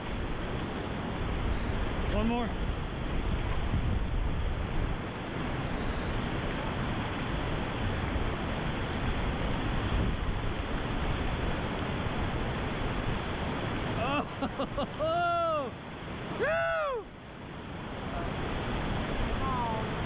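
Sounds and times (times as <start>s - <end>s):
wind on microphone: 0.0s - 14.0s
river rapids rushing: 0.0s - 20.0s.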